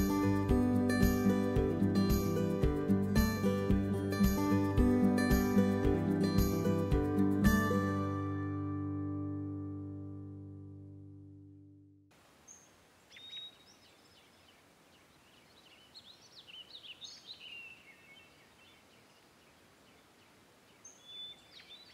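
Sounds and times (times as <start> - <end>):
background music: 0.0 - 11.2
small birds chirping: 12.4 - 21.9.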